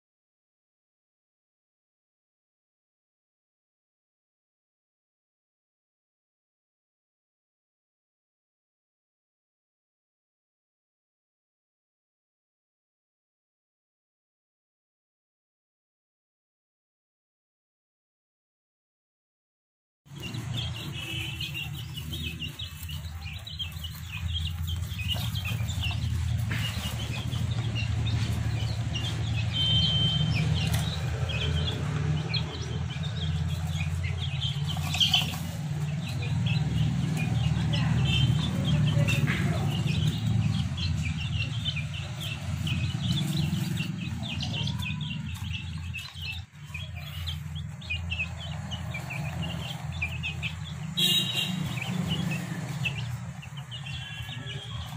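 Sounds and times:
chicks peeping: 20.1s - 54.9s.

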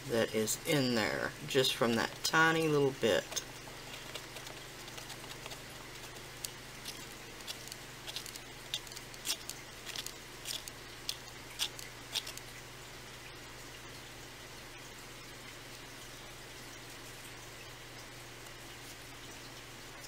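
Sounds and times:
low steady hum: 0.0s - 20.0s
stick stirring resin in cup: 3.2s - 12.4s.

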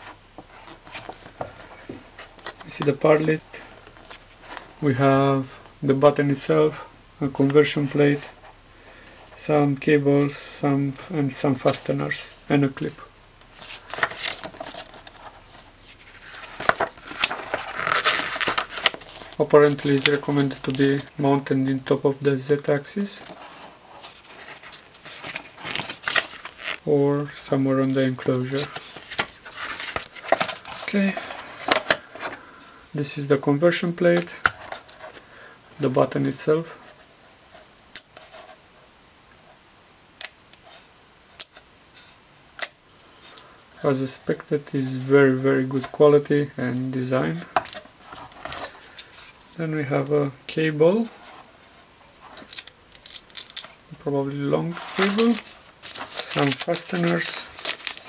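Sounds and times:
paper pages rustling: 0.0s - 4.8s, 13.4s - 22.0s, 22.9s - 32.6s, 46.7s - 50.2s, 54.4s - 58.0s.

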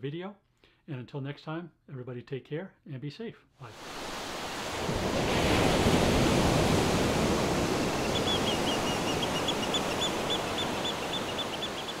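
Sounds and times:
surf rushing: 3.7s - 12.0s
small bird chirping: 8.0s - 12.0s.

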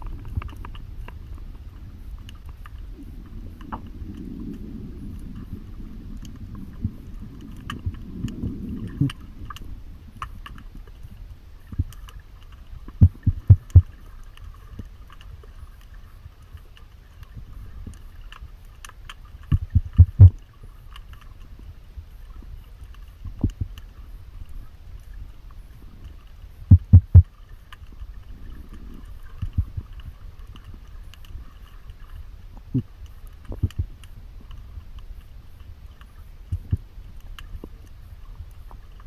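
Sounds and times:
low rumbling noise: 0.0s - 14.1s, 19.6s - 20.4s, 23.2s - 38.9s
faint clicks: 0.0s - 21.5s, 22.2s - 39.0s.

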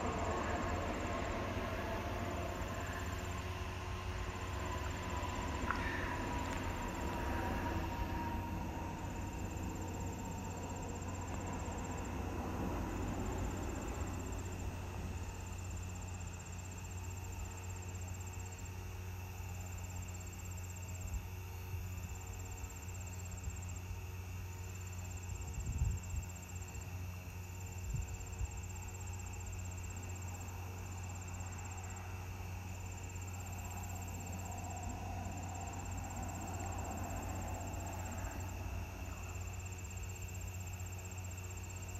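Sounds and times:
steady low rumble: 0.0s - 17.5s, 32.5s - 40.9s
high-pitched insect trill: 0.0s - 41.9s.

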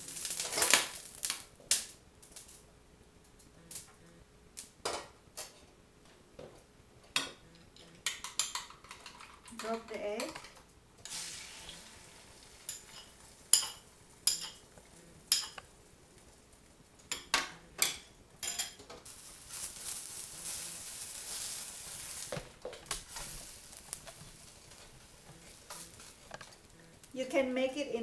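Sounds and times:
egg sizzling in a wok: 0.0s - 2.5s, 11.0s - 16.3s, 17.1s - 27.1s
spatula scraping in a wok: 18.5s - 22.4s.

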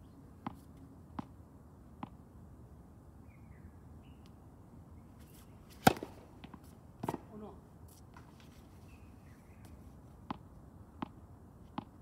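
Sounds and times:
faint bird chirp: 3.2s - 5.6s, 8.8s - 9.9s
tennis ball knocks: 5.8s - 7.4s.

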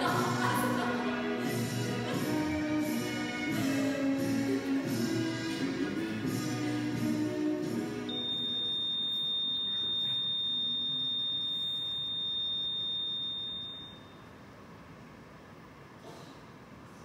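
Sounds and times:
music: 0.0s - 11.0s
high-pitched electronic beep: 8.1s - 14.2s.

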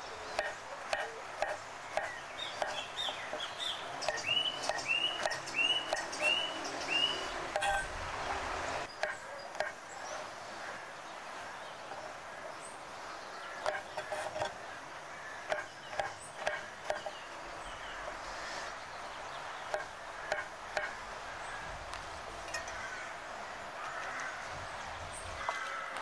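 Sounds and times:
knife chopping on wooden board: 0.4s - 6.1s, 15.5s - 17.1s.

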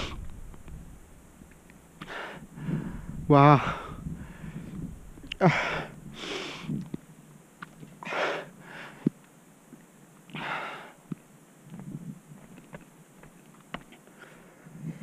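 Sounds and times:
person breathing hard: 2.0s - 6.8s, 8.0s - 9.1s, 10.3s - 11.0s.

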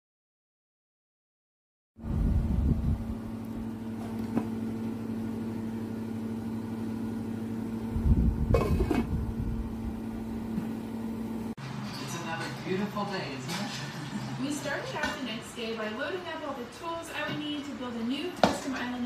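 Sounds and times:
steady low hum: 2.0s - 11.6s.

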